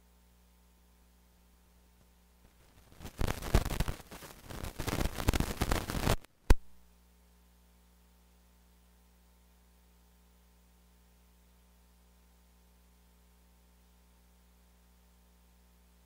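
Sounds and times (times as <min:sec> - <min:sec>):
crackling static: 0:00.0 - 0:16.0
low steady hum: 0:00.0 - 0:16.0
sharp pop: 0:04.6 - 0:06.7.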